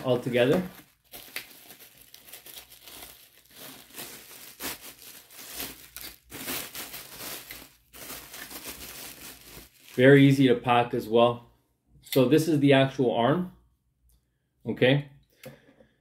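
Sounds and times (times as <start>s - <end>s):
bubble wrap crinkling: 0.0s - 10.4s.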